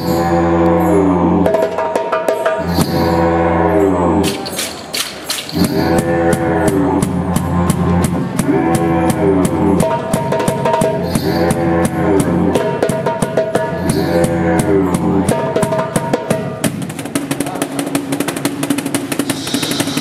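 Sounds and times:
didgeridoo droning: 0:00.0 - 0:04.7, 0:05.5 - 0:16.3
drum hits: 0:04.2 - 0:20.0.

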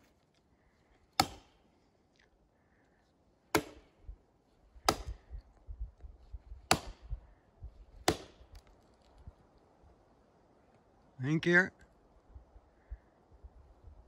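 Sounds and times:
axe chopping wood: 0:01.1 - 0:01.6, 0:03.5 - 0:04.0, 0:04.8 - 0:05.4, 0:06.6 - 0:07.2, 0:07.9 - 0:08.7.

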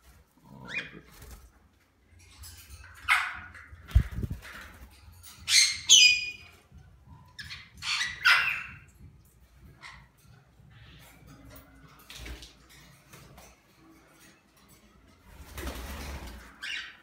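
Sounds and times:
cockatiels squawking: 0:07.4 - 0:08.9.

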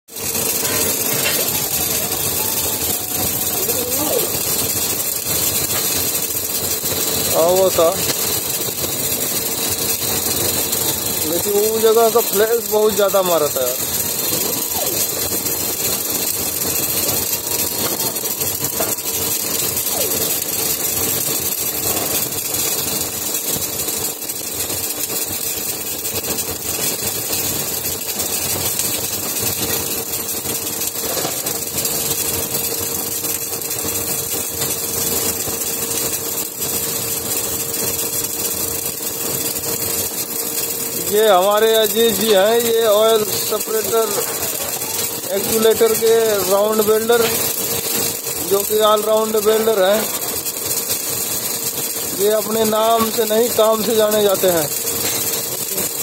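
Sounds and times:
welding arc crackling: 0:00.1 - 0:56.0.

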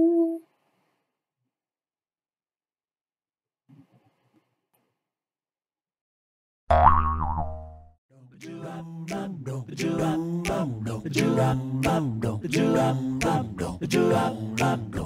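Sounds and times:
song with singing over a beat: 0:08.4 - 0:15.0.

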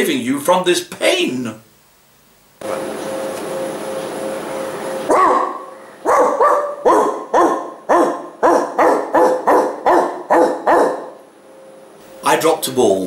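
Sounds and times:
steady hum: 0:00.0 - 0:13.0
dog barking: 0:05.1 - 0:11.2.

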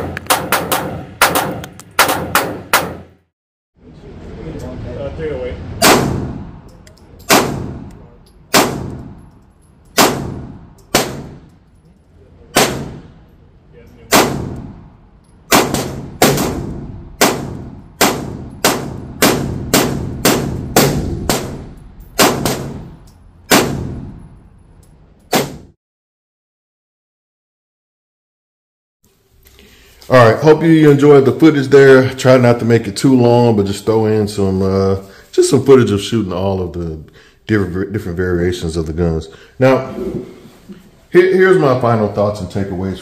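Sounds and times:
pistol shots: 0:00.0 - 0:03.0, 0:05.8 - 0:06.5, 0:07.2 - 0:09.2, 0:10.0 - 0:11.5, 0:12.5 - 0:13.2, 0:14.1 - 0:14.9, 0:15.5 - 0:24.2.

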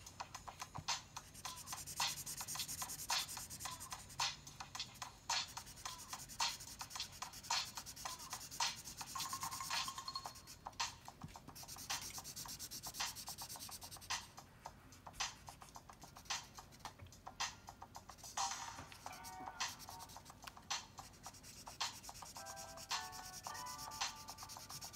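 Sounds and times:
pencil scratching on paper: 0:01.2 - 0:14.3, 0:18.1 - 0:24.9.

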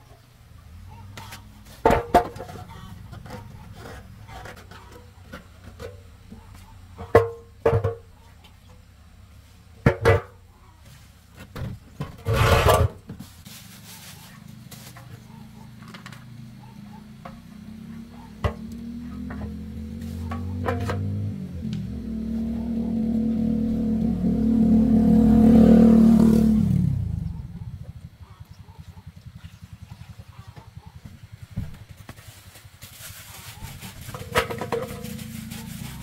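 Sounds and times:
tool scraping: 0:01.8 - 0:05.9, 0:12.1 - 0:14.2, 0:32.1 - 0:36.0.

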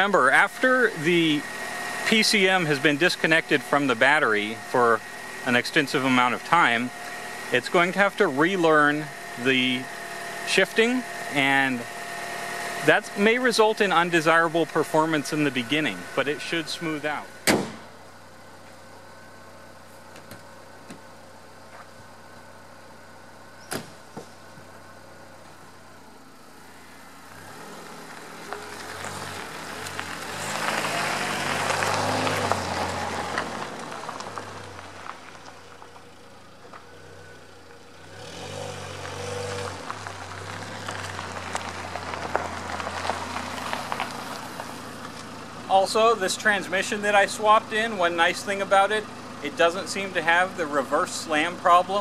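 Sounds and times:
car engine running and revving: 0:00.0 - 0:52.0
car door shutting: 0:17.4 - 0:18.0, 0:23.6 - 0:24.7.

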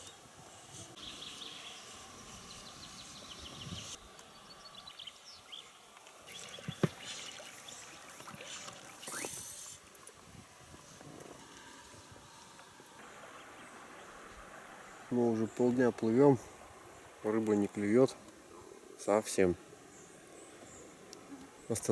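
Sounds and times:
small birds chirping: 0:00.0 - 0:09.7.

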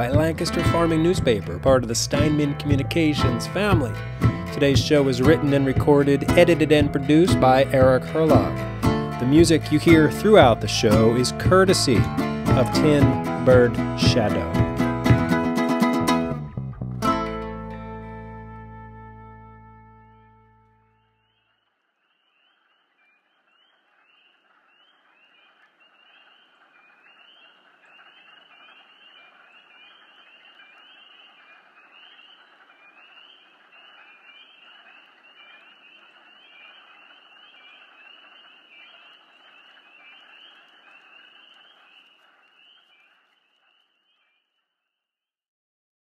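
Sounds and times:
frogs peeping: 0:22.1 - 0:44.2.

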